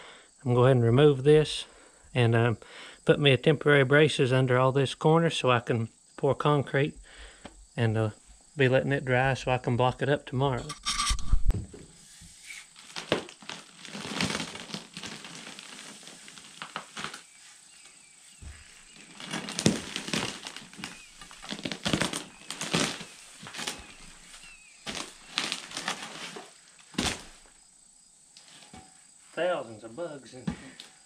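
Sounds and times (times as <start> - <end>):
decayed wood crunching: 12.5 - 27.7.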